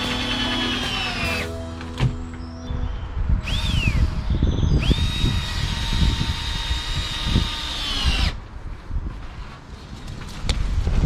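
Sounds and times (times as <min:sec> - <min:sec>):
cordless drill whining: 0:00.0 - 0:01.5, 0:03.4 - 0:08.4.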